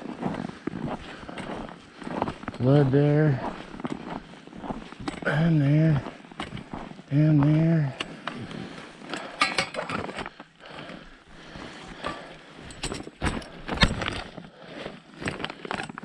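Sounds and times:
footsteps crunching on snow: 0:00.0 - 0:10.4
gear rattling: 0:12.0 - 0:14.5.

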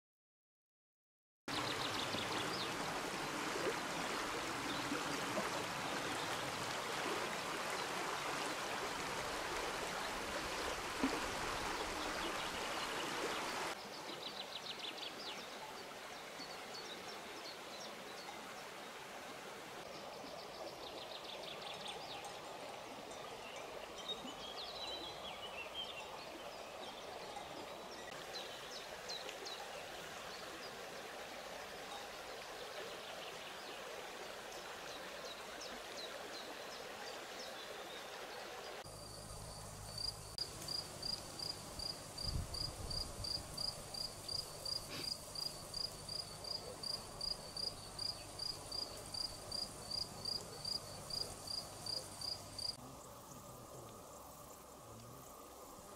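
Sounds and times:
insect chirping in regular pulse: 0:38.9 - 0:53.4.

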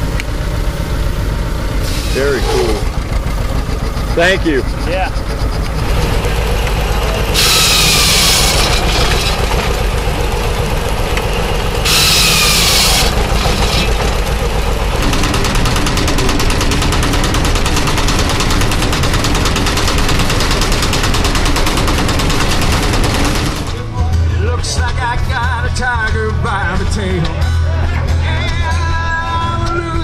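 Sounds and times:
circular saw cutting wood: 0:01.8 - 0:03.0, 0:04.1 - 0:19.0
grain mill clattering: 0:02.0 - 0:23.6.

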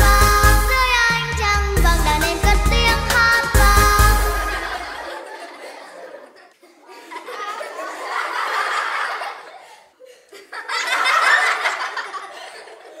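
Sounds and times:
young children laughing: 0:04.2 - 0:13.0.

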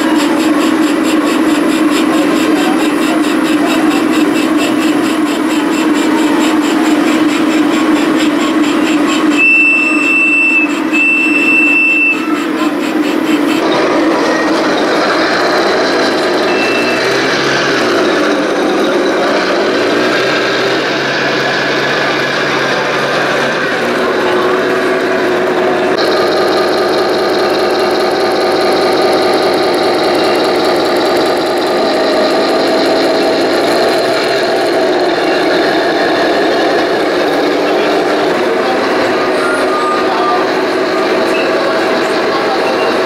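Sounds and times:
engine note rising in pitch: 0:00.0 - 0:43.0
toy tank engine drone: 0:00.0 - 0:43.0
long high beeps: 0:09.0 - 0:12.4, 0:16.3 - 0:17.2.

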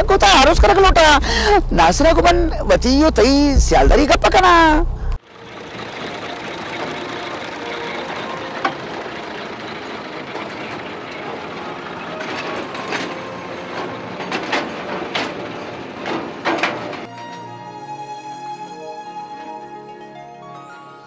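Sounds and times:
mine tubs rumbling on rails: 0:00.0 - 0:17.6
music: 0:06.0 - 0:09.8, 0:11.5 - 0:15.8, 0:16.7 - 0:21.0
sharp metal clanks: 0:06.4 - 0:17.1.

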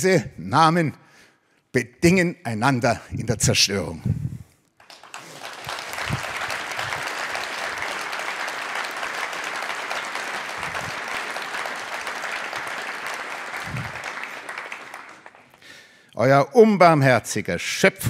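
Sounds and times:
audience applauding: 0:04.8 - 0:15.9.

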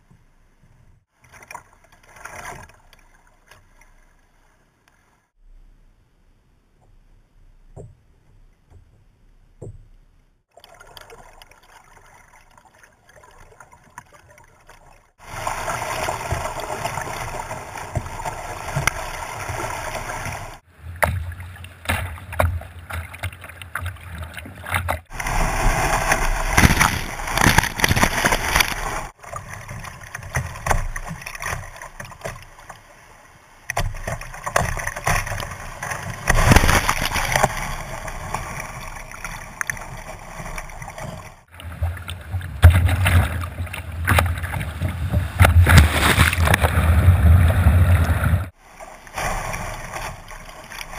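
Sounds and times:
water splashing over kayak: 0:01.1 - 0:04.2, 0:10.5 - 0:50.9
river water rushing around kayak: 0:10.6 - 0:50.9.

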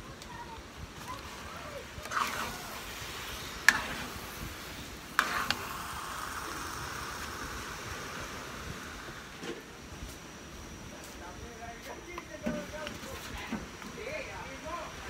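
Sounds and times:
food sizzling in a metal pan: 0:01.0 - 0:10.5.

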